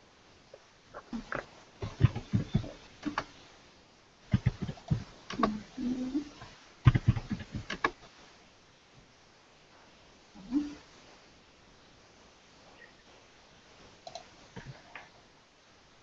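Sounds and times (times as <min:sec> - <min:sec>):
keyboard typing: 0:06.9 - 0:07.9.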